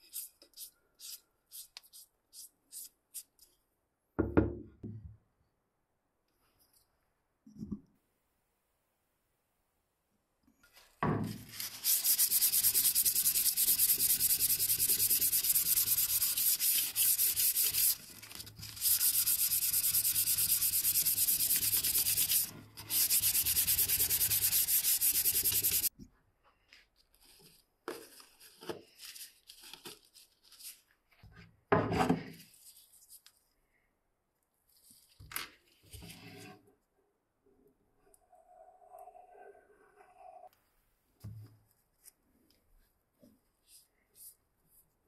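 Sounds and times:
hand sanding wood: 0:11.6 - 0:25.9.

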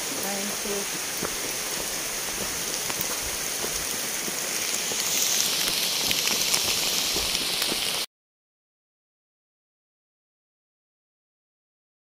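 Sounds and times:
heavy rain falling: 0:00.0 - 0:08.1.

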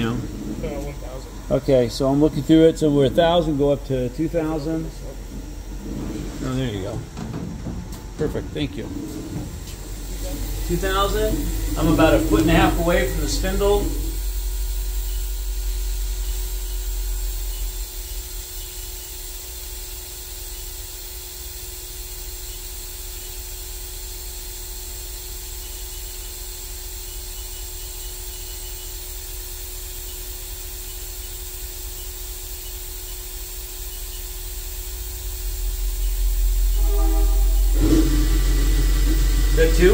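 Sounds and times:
machine spindle humming: 0:00.0 - 0:18.7, 0:27.1 - 0:39.9
deep rumble: 0:04.8 - 0:14.7, 0:36.2 - 0:39.9.

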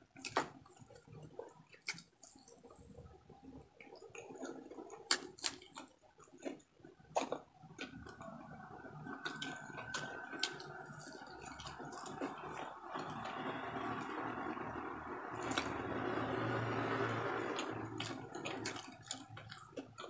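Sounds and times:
wet chewing: 0:00.2 - 0:20.0.

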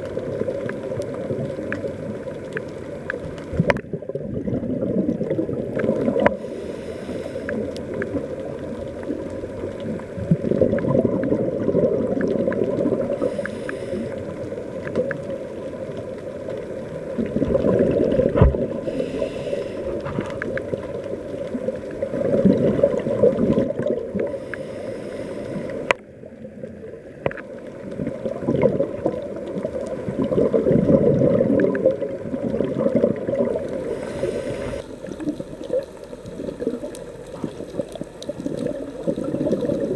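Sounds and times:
regulator exhale bubbling: 0:03.5 - 0:09.2, 0:09.8 - 0:15.3, 0:17.1 - 0:26.0, 0:27.9 - 0:39.9
regulator inhale hiss: 0:06.2 - 0:08.1, 0:13.1 - 0:14.6, 0:18.7 - 0:20.4, 0:24.2 - 0:26.0, 0:33.7 - 0:36.4.

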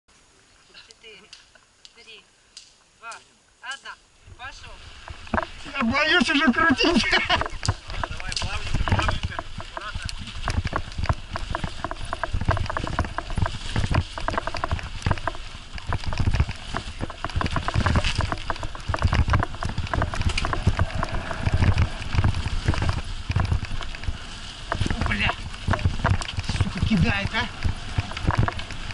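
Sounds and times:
camera clattering and clicking: 0:07.0 - 0:28.9
dull thumps: 0:07.0 - 0:28.9.

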